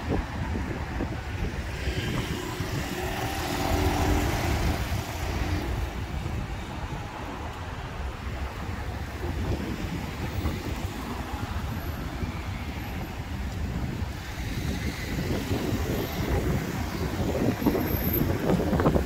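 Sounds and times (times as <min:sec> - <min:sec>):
wind buffeting microphone: 0:00.0 - 0:19.0
vehicle passing: 0:01.9 - 0:06.4.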